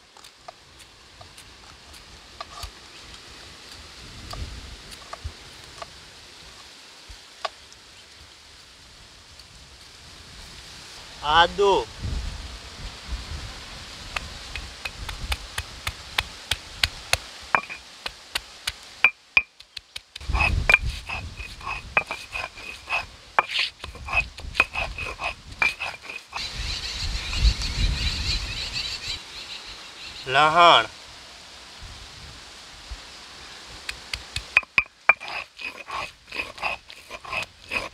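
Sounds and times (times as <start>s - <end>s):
stone roller grinding: 17.6s - 17.8s, 19.4s - 26.4s, 33.9s - 37.9s
stone-on-stone knocks: 17.6s - 18.2s, 19.0s - 26.2s, 34.1s - 37.9s.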